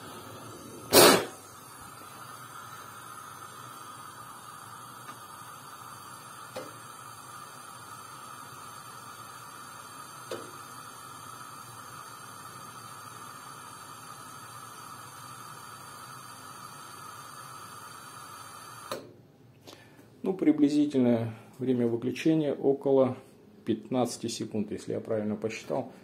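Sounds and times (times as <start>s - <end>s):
faint hiss of gas: 0.0s - 20.2s.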